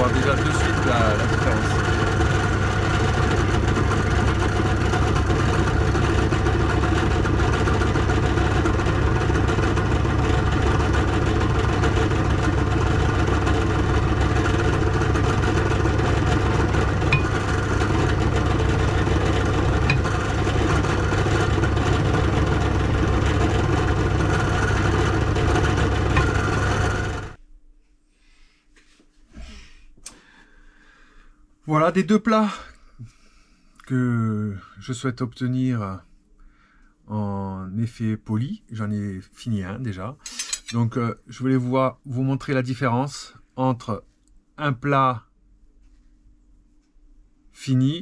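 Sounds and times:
drill press humming: 0.0 - 27.4
metal bar buffed on polishing pad: 13.6 - 27.3.

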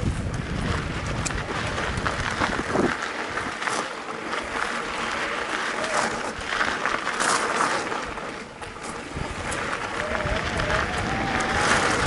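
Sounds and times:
bike tyres crunching on gravel: 0.0 - 12.0.

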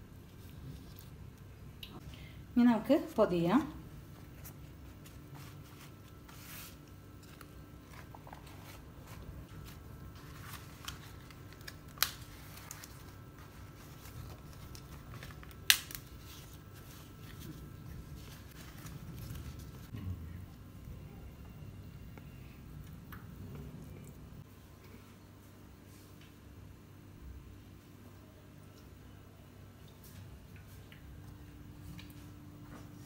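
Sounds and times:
low steady hum: 0.0 - 33.0
leaf crinkling and rustling: 4.1 - 20.0.

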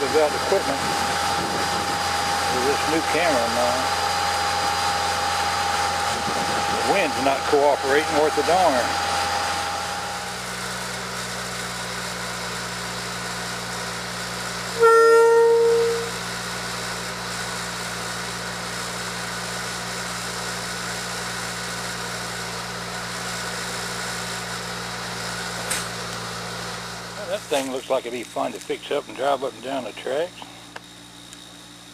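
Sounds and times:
rail motorcar engine idling: 0.0 - 31.9
horn toot: 14.7 - 16.2.

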